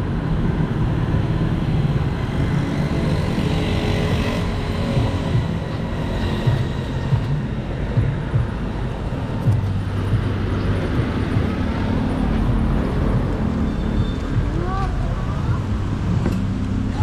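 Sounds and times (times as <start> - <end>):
vehicle engines rumbling: 0.0 - 17.0.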